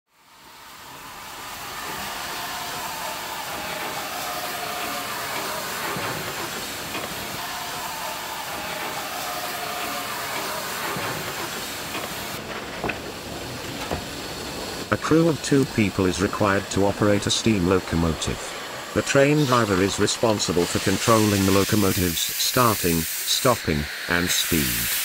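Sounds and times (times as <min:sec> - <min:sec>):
steam hissing from locomotive: 0:00.1 - 0:25.0.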